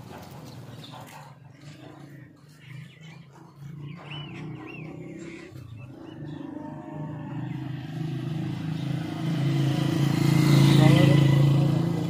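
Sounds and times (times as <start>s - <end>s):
motorcycle engine droning: 2.9s - 12.0s.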